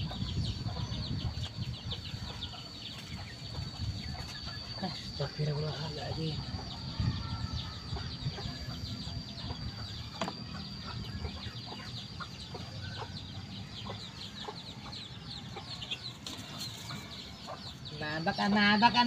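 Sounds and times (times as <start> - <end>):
steady high-pitched whine: 0.0 - 19.0
chicken clucking: 7.9 - 18.6.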